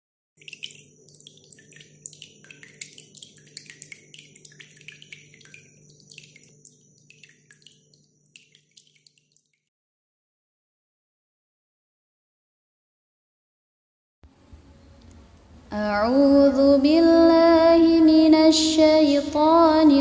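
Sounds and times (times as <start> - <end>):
water drops dripping: 0.4 - 9.7.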